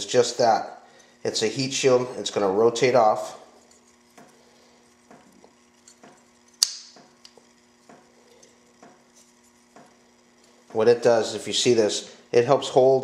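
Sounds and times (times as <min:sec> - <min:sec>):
sharp loud click: 0:06.6 - 0:07.0.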